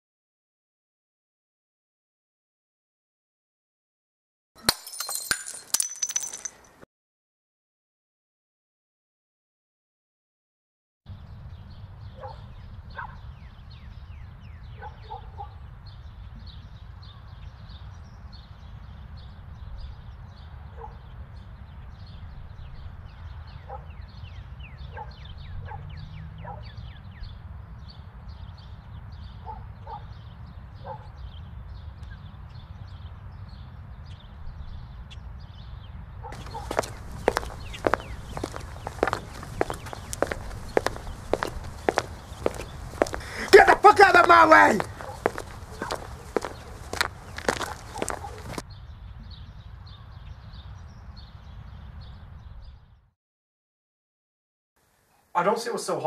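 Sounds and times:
footsteps on cobbles: 4.7 - 6.8, 36.4 - 48.6
small birds chirping: 11.2 - 52.7
dog barking: 12.2 - 13.2, 14.8 - 15.6, 20.8 - 21.0, 23.7 - 24.0, 24.9 - 26.8, 29.4 - 30.1, 30.8 - 31.2, 36.2 - 36.8, 44.9 - 46.8, 47.6 - 48.6.

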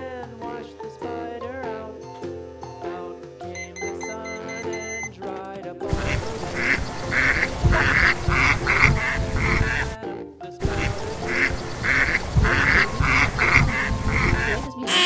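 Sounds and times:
light background music: 0.0 - 15.0
duck quacking: 6.0 - 10.0, 10.7 - 15.0.

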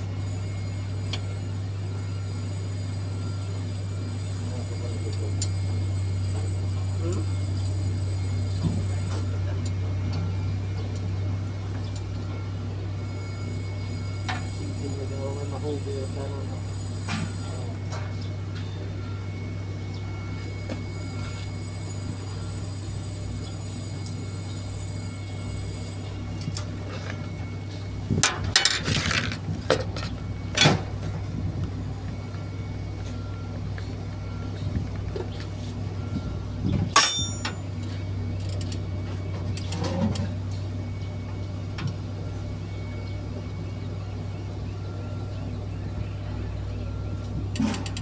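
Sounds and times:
engine humming: 0.0 - 48.0
knocks and clinks: 37.0 - 37.6.

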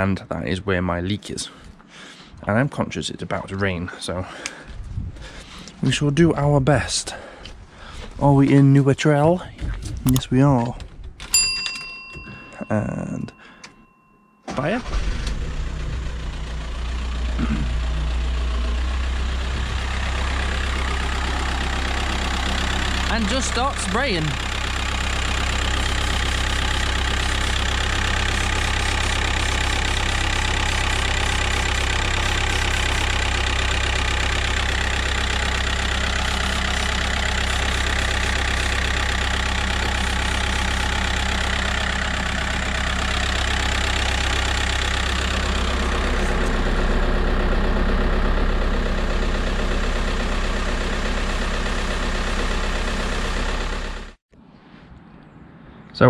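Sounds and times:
diesel engine idling: 14.5 - 54.2
spray can hissing: 27.3 - 32.9.

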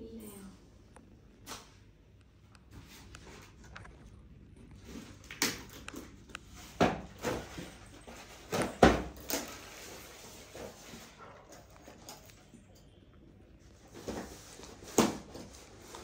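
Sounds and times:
rustling scrapes: 9.4 - 12.1, 13.7 - 16.0.

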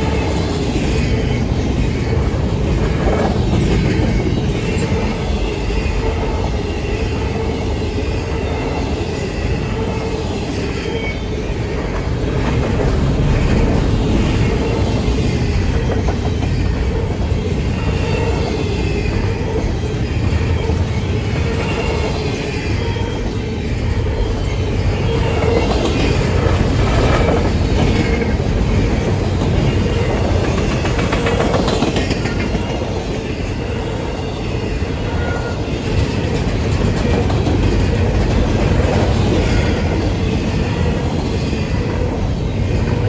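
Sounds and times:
train wheels rumbling on rail: 0.0 - 43.0
wheels clacking over track joints: 25.2 - 33.1.

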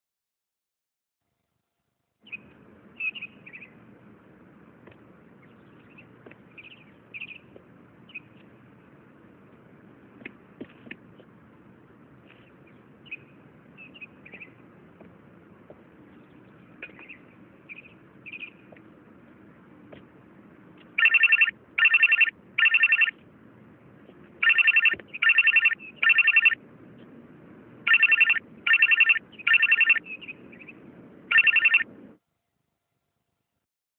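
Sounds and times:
mobile phone ringtone: 21.0 - 23.1, 24.4 - 26.6, 27.9 - 30.0, 31.3 - 31.9.

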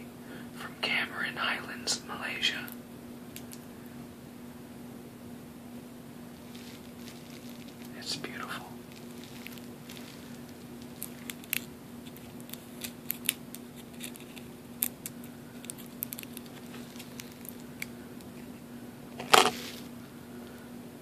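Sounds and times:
steady low hum: 0.0 - 21.0
plastic packaging crinkling: 6.3 - 17.9, 19.2 - 19.9.

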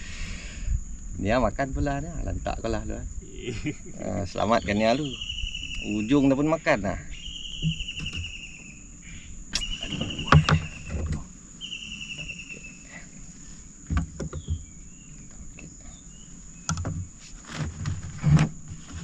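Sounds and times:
high insect whine: 0.0 - 19.0
fishing gear knocking in boat: 9.9 - 11.3, 13.9 - 14.7.

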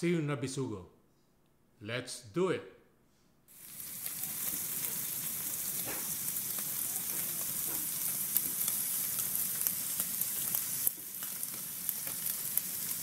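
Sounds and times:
frying sizzle with crackles: 3.5 - 13.0.

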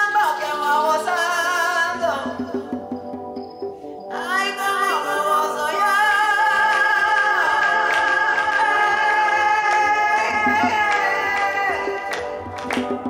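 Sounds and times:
live psychedelic band music: 0.0 - 13.0
man singing long held note: 4.1 - 13.0.

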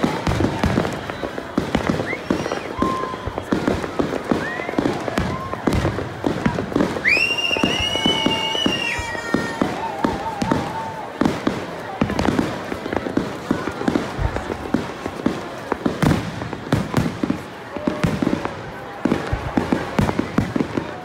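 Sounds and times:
fireworks rising whistles: 0.0 - 11.2
fireworks bangs and crackling: 0.0 - 21.0.

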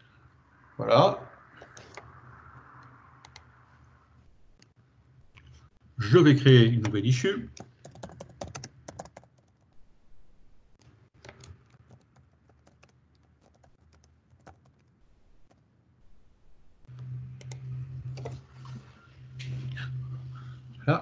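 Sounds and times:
low steady hum: 0.0 - 7.6, 12.7 - 21.0
keyboard typing: 1.6 - 2.2, 3.2 - 3.5, 6.8 - 9.8, 10.8 - 15.7, 16.9 - 18.4.

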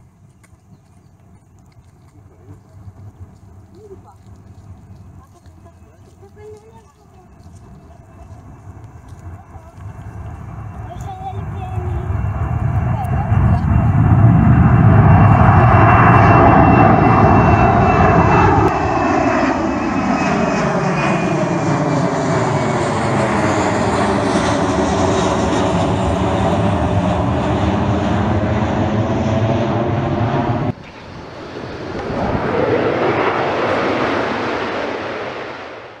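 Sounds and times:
jet engine roar with whine: 2.3 - 36.0
quiet rushing: 25.8 - 36.0.

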